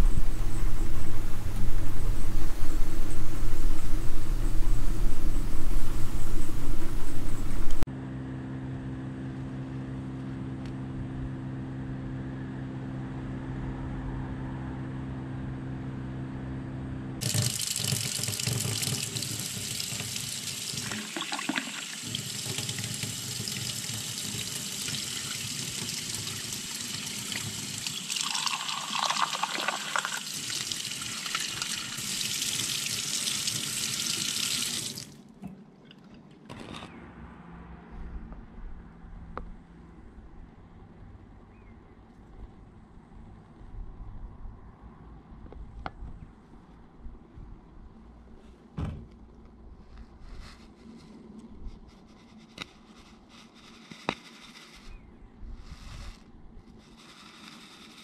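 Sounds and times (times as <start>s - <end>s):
steady low hum: 0.0s - 17.2s, 36.9s - 57.2s
tap running into sink: 17.2s - 35.0s
water pouring into sieve: 17.2s - 35.1s.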